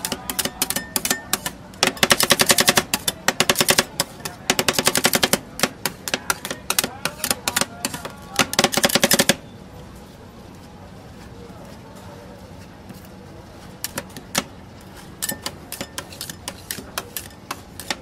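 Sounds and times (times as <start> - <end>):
metal spatulas clanging on steel: 0.0 - 9.2, 15.2 - 18.0.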